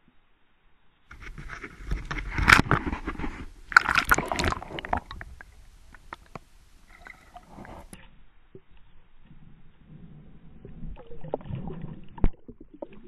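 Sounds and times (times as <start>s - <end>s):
water splashing against camera housing: 1.1s - 8.7s
clicks underwater: 1.1s - 8.9s, 10.6s - 13.0s.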